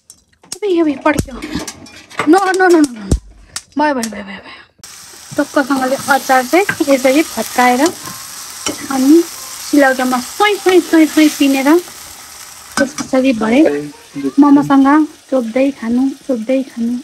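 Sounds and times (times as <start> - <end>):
tomato sizzling in oil: 4.8 - 17.0.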